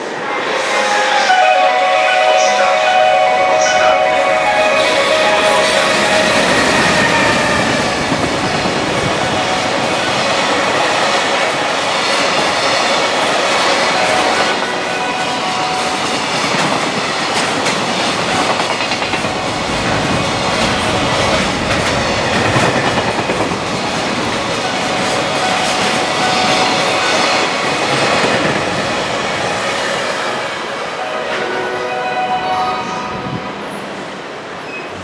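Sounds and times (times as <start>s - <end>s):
steel wheels rushing on rail: 0.0s - 35.0s
wheels clickety-clack over rail joints: 5.9s - 30.4s.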